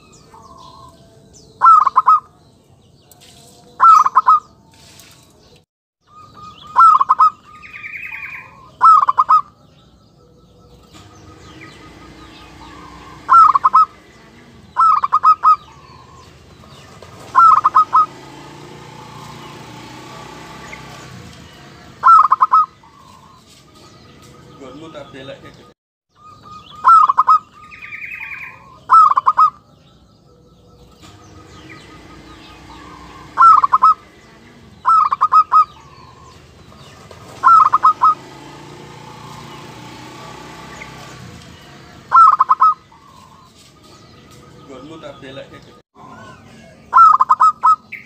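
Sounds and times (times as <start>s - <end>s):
dove cooing: 1.6s - 2.4s, 3.8s - 4.5s, 6.1s - 9.6s, 10.3s - 19.6s, 21.7s - 23.4s, 26.2s - 29.7s, 30.7s - 39.6s, 42.0s - 43.5s, 46.0s - 48.0s.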